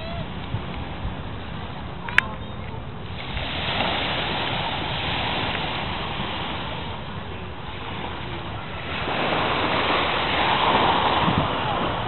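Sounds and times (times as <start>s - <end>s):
wind rumbling on microphone: 0.0s - 12.0s
waves breaking on beach: 2.9s - 12.0s.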